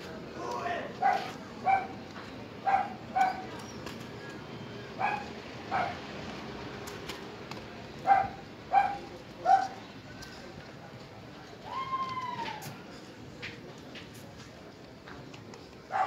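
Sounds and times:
dog barking: 0:01.0 - 0:01.9, 0:02.6 - 0:03.4, 0:05.0 - 0:06.0, 0:08.0 - 0:09.8.

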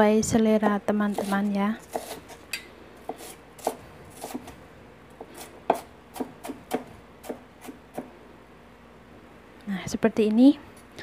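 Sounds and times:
knife chopping on cutting board: 0:01.1 - 0:02.4, 0:03.0 - 0:04.5, 0:05.2 - 0:08.1.

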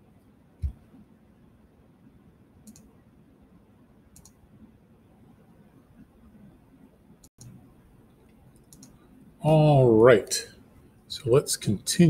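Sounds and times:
computer mouse double clicks: 0:08.6 - 0:09.0.

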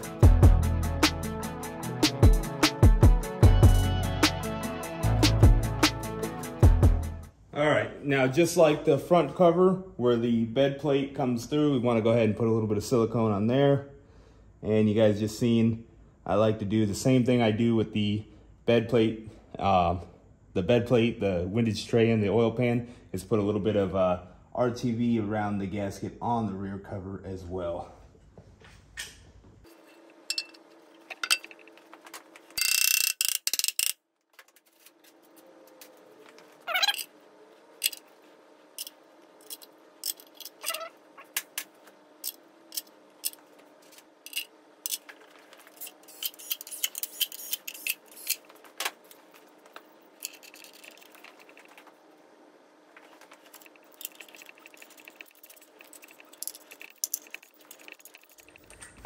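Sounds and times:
metal clicks and clinks: 0:30.3 - 0:31.7, 0:37.8 - 0:38.0, 0:38.8 - 0:40.8, 0:44.3 - 0:45.1, 0:50.2 - 0:51.8, 0:53.5 - 0:59.0
wrench ratcheting: 0:32.6 - 0:34.0, 0:38.8 - 0:40.8, 0:44.3 - 0:45.1, 0:45.7 - 0:48.5, 0:50.2 - 0:51.7, 0:53.5 - 0:58.8.

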